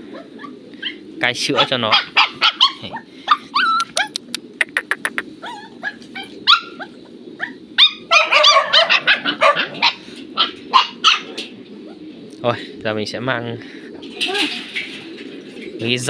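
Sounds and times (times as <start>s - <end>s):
puppies yelping and whimpering: 0.0s - 4.4s, 5.1s - 12.2s.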